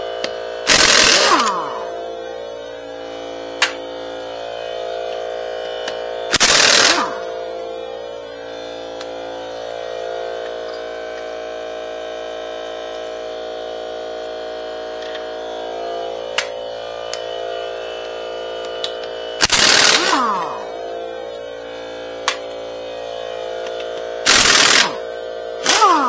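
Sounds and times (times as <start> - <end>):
steady hum: 0.0 - 26.0
pneumatic impact wrench burst: 0.6 - 1.9, 6.3 - 7.3, 19.4 - 20.7, 24.2 - 25.0, 25.6 - 26.0.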